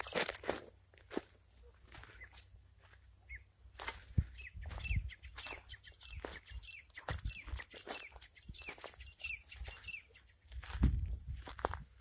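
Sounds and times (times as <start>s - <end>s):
footsteps crunching through scrub: 0.0s - 12.0s
small bird chirping: 2.1s - 2.6s, 3.2s - 10.6s
wind on microphone: 4.1s - 5.2s, 10.6s - 12.0s.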